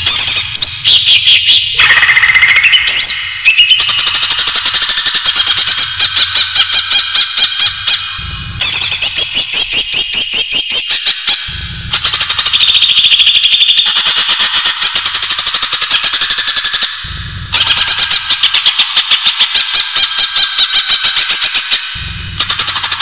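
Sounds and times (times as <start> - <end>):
bird calling sharp high notes: 0.0 - 15.0.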